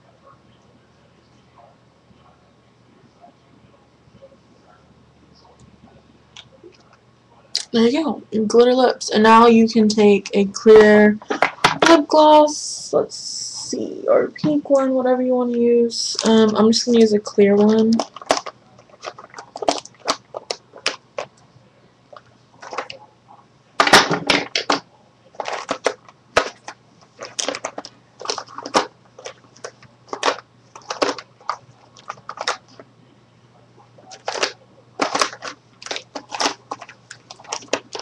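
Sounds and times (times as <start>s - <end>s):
plastic containers clattering: 10.8s - 12.0s, 16.1s - 21.4s, 22.1s - 23.0s, 23.8s - 32.8s, 34.0s - 38.0s.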